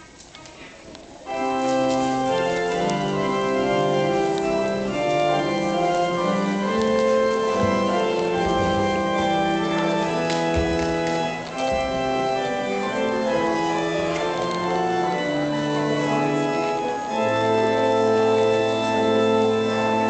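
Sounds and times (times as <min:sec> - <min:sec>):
church organ chords: 0:01.2 - 0:20.0.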